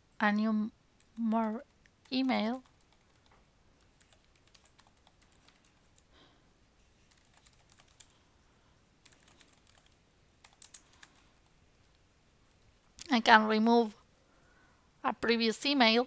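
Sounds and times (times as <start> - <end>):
faint keyboard typing: 1.0 - 8.3, 9.0 - 13.2.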